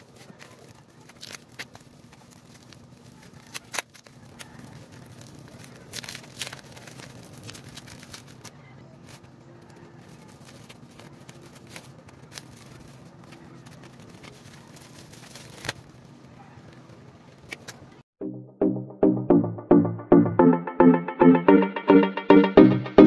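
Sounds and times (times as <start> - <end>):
plastic wrapping crinkling: 0.0 - 17.9.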